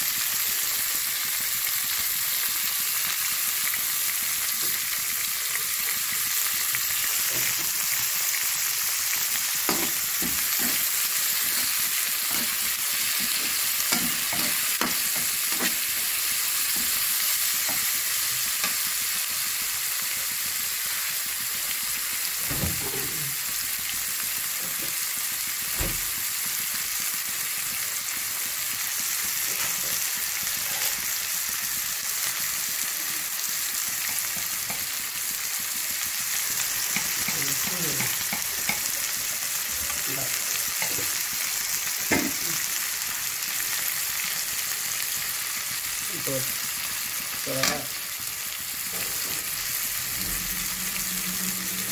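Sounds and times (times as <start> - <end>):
onions sizzling in hot oil: 0.0 - 51.9
spoon scraping and knocking pan: 9.6 - 18.0, 36.7 - 39.0.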